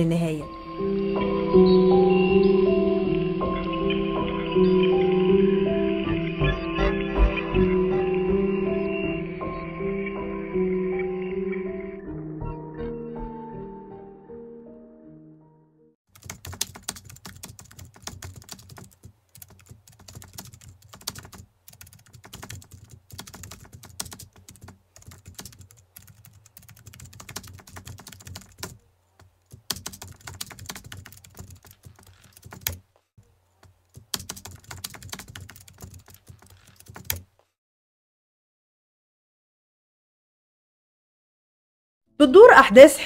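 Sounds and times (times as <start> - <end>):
keyboard typing: 16.1 - 32.8, 33.6 - 37.3.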